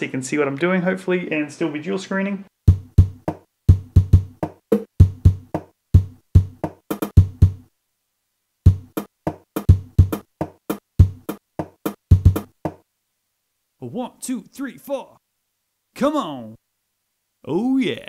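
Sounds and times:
drum-like guitar sample hits: 2.7s - 7.6s, 8.7s - 12.8s.

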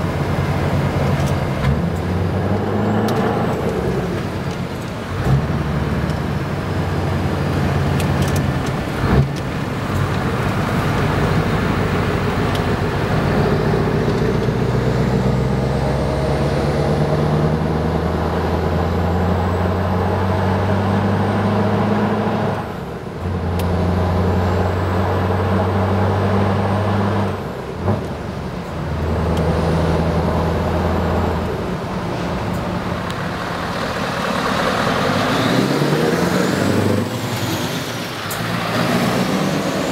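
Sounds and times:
diesel truck engine accelerating: 0.0s - 39.9s.

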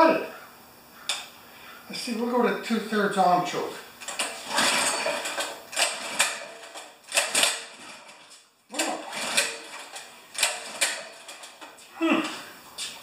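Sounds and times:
recoil starter pulls rasping: 4.0s - 12.9s.

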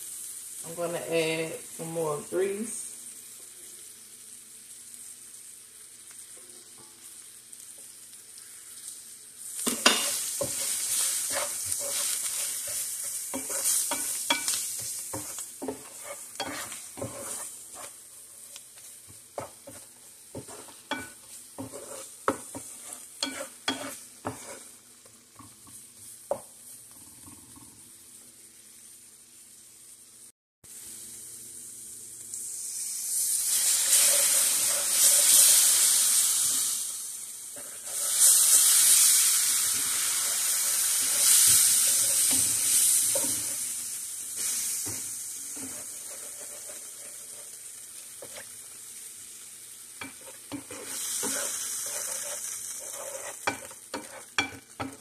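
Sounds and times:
onions sizzling in a frying pan: 0.0s - 55.0s
wooden spatula scraping a pan: 9.6s - 24.8s, 33.8s - 35.8s, 37.6s - 38.6s, 39.6s - 43.7s, 44.4s - 48.6s, 50.0s - 55.0s.

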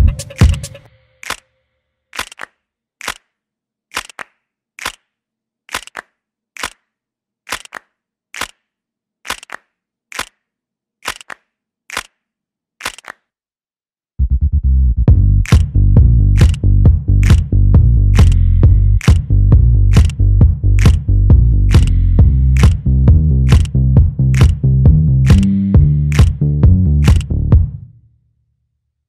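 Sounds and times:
sharp clicks: 8.4s - 8.6s, 9.3s - 10.4s, 11.0s - 12.2s, 19.9s - 20.2s, 20.8s - 21.0s, 23.5s - 23.7s, 24.4s - 24.6s, 26.1s - 26.3s, 27.0s - 27.3s.

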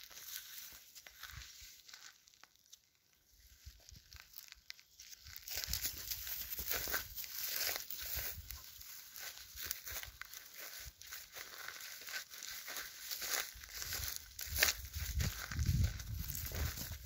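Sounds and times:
footsteps crunching dry grass: 0.0s - 17.0s.

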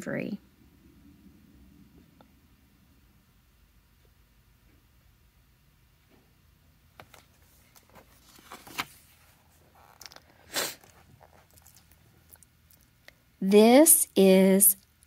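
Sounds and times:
book page rustling: 7.0s - 12.1s.

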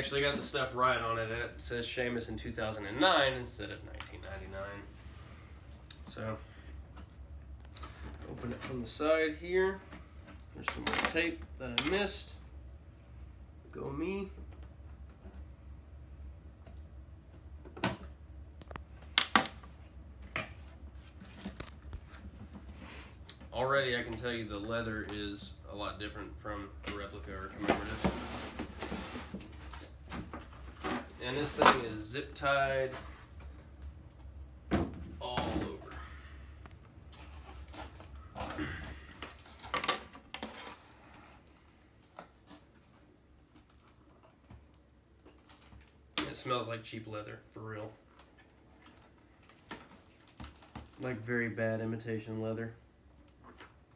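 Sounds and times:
cardboard box rustling and scraping: 27.7s - 29.8s.

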